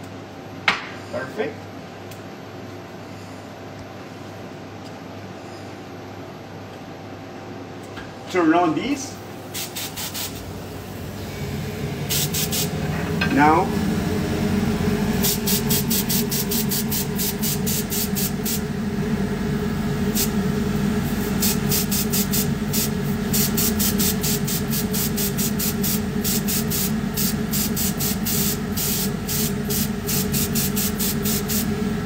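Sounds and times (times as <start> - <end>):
airbrush spraying hissing bursts: 9.5 - 11.4, 12.0 - 12.8, 15.2 - 18.7, 20.1 - 20.4, 21.0 - 31.7.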